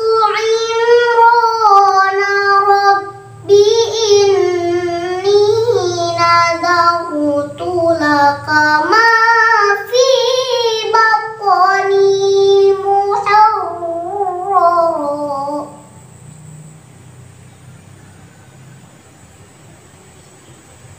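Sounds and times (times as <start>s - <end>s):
girl reciting melodically: 0.0s - 16.2s.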